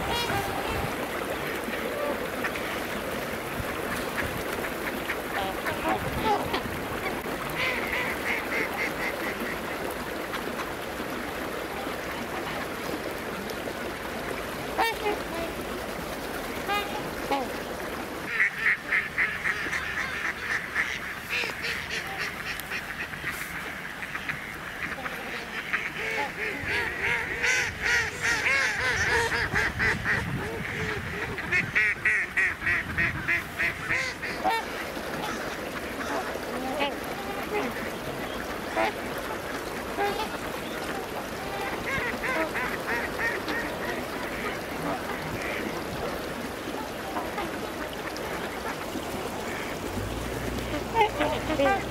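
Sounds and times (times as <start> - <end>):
waterfowl calling: 0.0 - 3.2, 16.3 - 46.0, 46.9 - 51.9
ducks quacking: 0.0 - 10.7, 18.2 - 46.0, 46.8 - 51.9.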